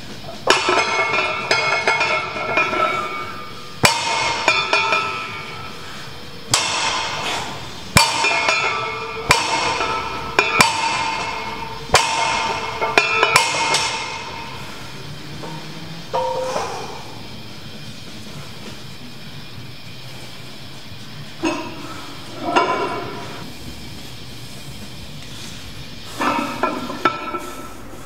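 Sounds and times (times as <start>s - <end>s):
iron barbell plates clanking on floor: 0.4s - 17.4s, 21.4s - 23.5s, 26.1s - 27.8s.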